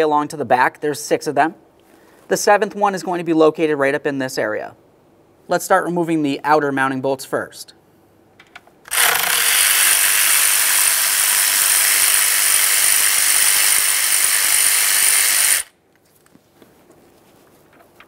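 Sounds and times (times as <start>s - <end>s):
fast ratcheting of socket wrench: 8.9s - 15.7s.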